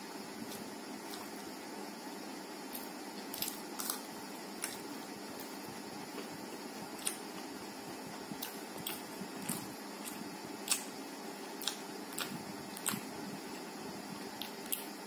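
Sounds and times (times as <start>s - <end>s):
steady background hiss: 0.0s - 15.0s
chewing with wet clicks: 7.0s - 7.4s, 8.4s - 10.9s, 11.6s - 13.1s, 14.4s - 14.9s.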